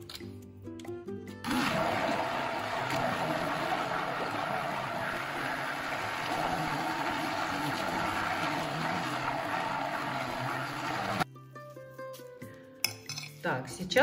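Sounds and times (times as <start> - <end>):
immersion blender running: 1.4 - 11.2.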